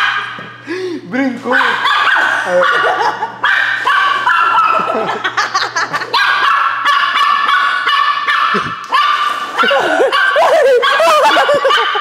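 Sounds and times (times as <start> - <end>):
small dog yapping: 1.6 - 4.9.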